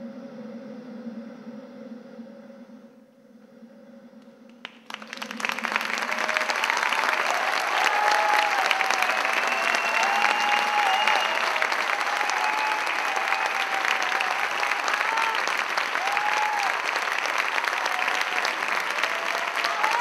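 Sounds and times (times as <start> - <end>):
audience applauding: 4.6 - 20.0
high calls from audience: 4.9 - 20.0.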